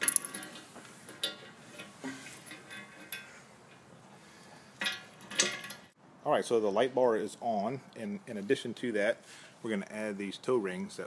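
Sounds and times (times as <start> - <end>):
metal hardware clinking: 0.0 - 3.9, 4.8 - 5.9.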